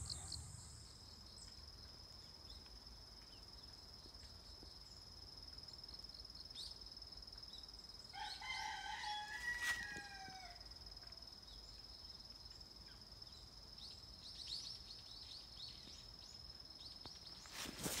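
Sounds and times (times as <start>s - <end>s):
insects trilling: 0.0s - 18.0s
rooster crowing: 8.1s - 10.7s.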